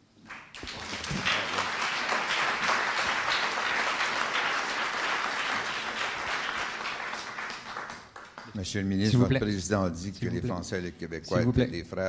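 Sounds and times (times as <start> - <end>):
audience applauding: 0.2 - 8.8.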